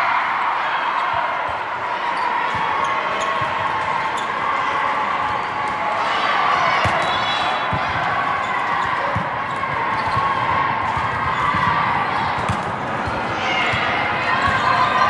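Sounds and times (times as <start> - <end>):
volleyballs thumping: 9.0 - 14.7.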